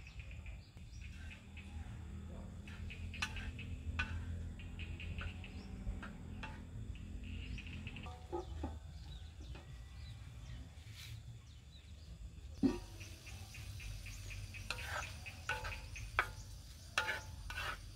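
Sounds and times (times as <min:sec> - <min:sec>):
steady low rumble: 0:00.0 - 0:08.1
wooden spatula stirring in wok: 0:12.6 - 0:17.9.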